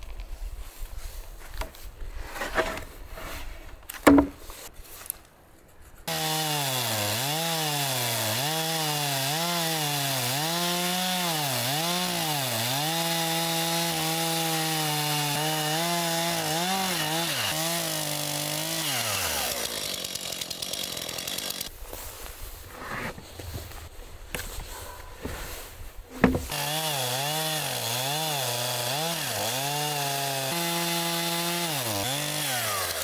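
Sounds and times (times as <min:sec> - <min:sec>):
wooden log knocking and rubbing: 0:03.9 - 0:04.7, 0:22.7 - 0:26.6
chainsaw cutting log: 0:06.1 - 0:21.8, 0:26.1 - 0:33.0.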